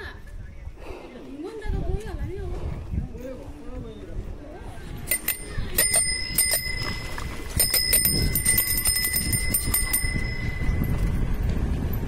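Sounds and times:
bicycle bell ringing: 5.0s - 12.0s.

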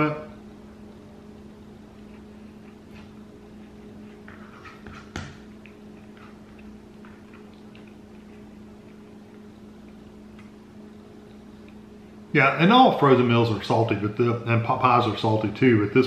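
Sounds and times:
steady low hum: 0.0s - 16.0s
chewing mouth noises: 5.5s - 12.2s.

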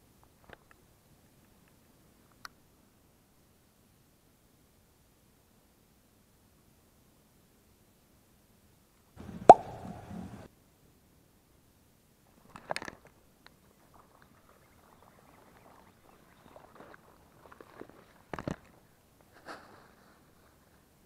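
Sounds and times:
fishing rod cast snap: 9.5s - 10.0s
faint rustling: 12.3s - 21.0s.

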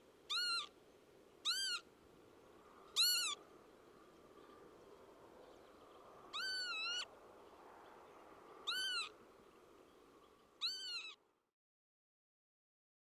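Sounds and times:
faint background hiss: 0.0s - 11.5s
lapwing calling: 0.3s - 0.8s, 1.4s - 1.9s, 2.9s - 3.4s, 6.3s - 7.1s, 8.6s - 9.2s, 10.6s - 11.2s.

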